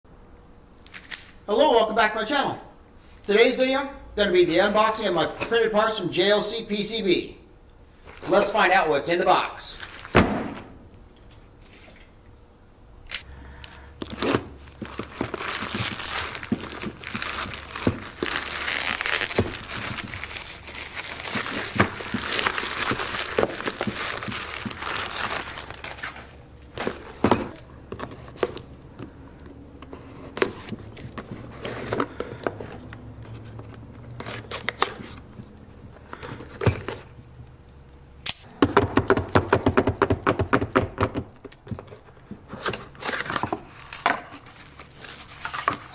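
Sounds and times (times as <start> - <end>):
plastic wrap crinkling and tearing: 9.7 - 10.2, 13.7 - 26.4, 42.9 - 45.9.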